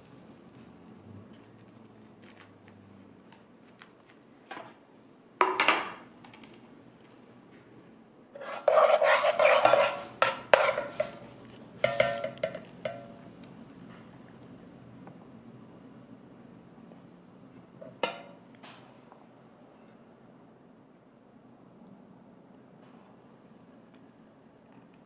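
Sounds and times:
dishes and utensils scraping: 8.4 - 13.2
dishes clattering: 8.4 - 13.2, 17.8 - 18.4.

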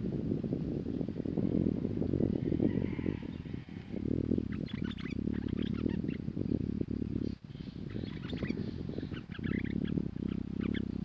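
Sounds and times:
low rumbling noise: 0.0 - 11.0
bird chirping: 4.3 - 11.0.

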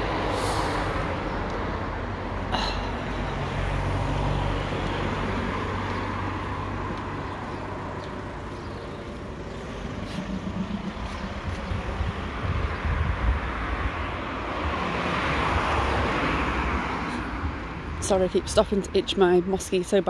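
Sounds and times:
vehicle engine rumble: 0.0 - 15.6.

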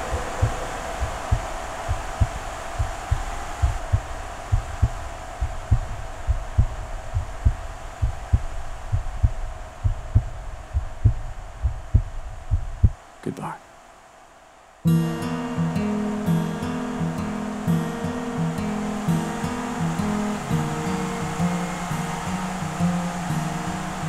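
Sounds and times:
heartbeat thumping: 0.0 - 13.0
steady hum: 0.0 - 24.0.

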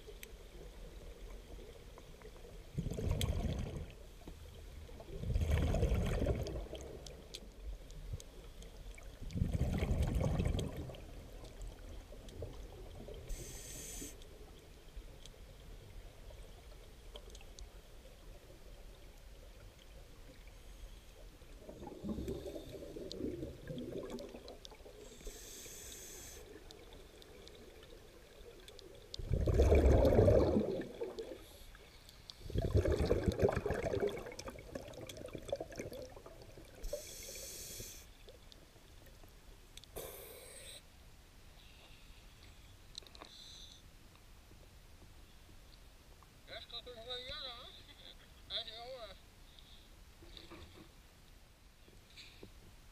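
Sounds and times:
bubbling exhaled air underwater: 2.6 - 4.0, 5.0 - 7.1, 9.0 - 13.6, 21.6 - 25.3, 27.6 - 31.6, 32.4 - 37.5
regulator inhalation hiss: 13.3 - 14.2, 25.0 - 26.6, 36.8 - 38.2, 40.0 - 40.8.

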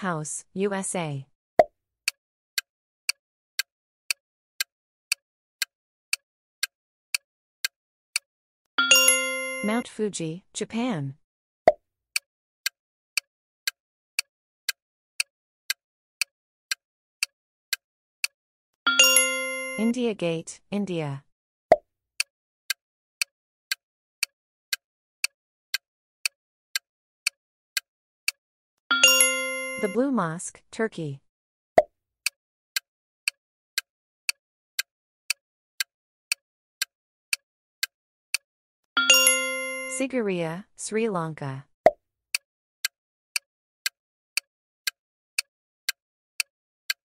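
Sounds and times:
countdown timer ticking: 8.8 - 10.0, 18.9 - 21.1, 28.9 - 30.4, 39.0 - 41.6
clock-like ticking: 15.7 - 20.0, 25.7 - 30.1, 42.3 - 47.0.

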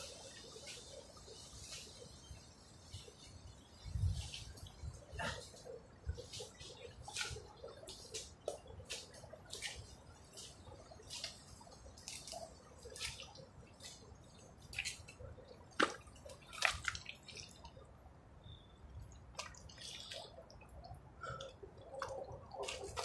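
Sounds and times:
small wet clicks and plops: 6.3 - 17.9, 19.0 - 23.0
wet mud squelching: 15.7 - 17.7.

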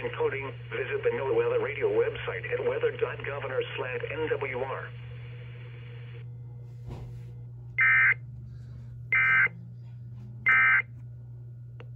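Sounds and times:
low electrical hum: 0.0 - 11.9.

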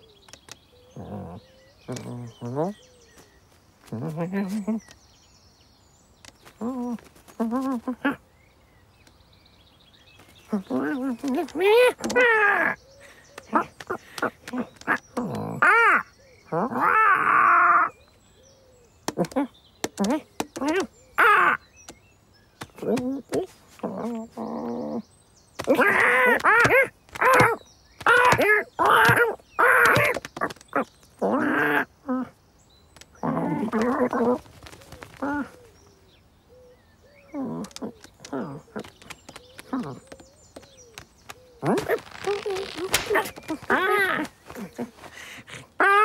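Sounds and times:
person imitating cat and crow: 25.6 - 30.6.

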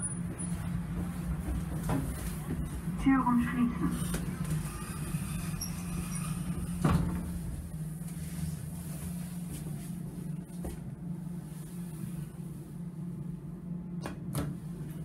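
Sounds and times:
steady low hum: 0.0 - 15.0
sliding lift doors closing: 4.0 - 8.3.

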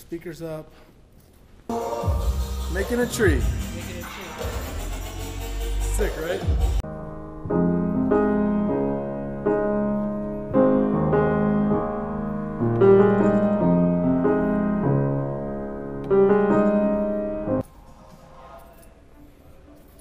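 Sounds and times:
piano chords over bass line: 1.7 - 17.6.

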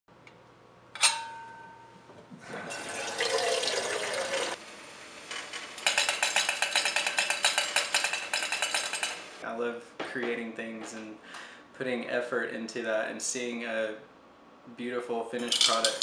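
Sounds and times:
metallic clink: 1.0 - 2.0
water filling a kettle: 2.5 - 4.6.

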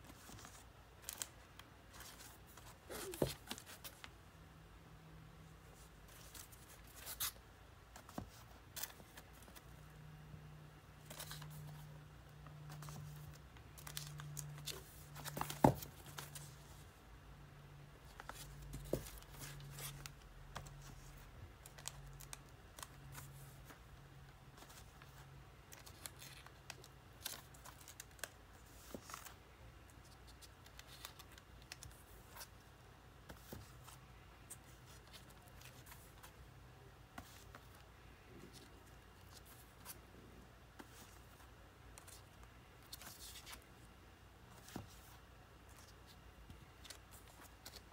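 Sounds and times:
plastic record sleeves crinkling: 11.0 - 16.8, 18.0 - 23.8, 24.5 - 32.6.

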